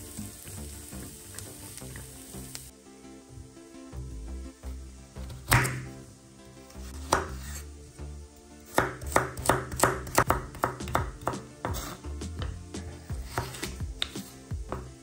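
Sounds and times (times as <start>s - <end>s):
knife chopping carrot on board: 5.3s - 5.9s, 7.0s - 7.6s, 8.7s - 12.6s, 13.2s - 15.0s.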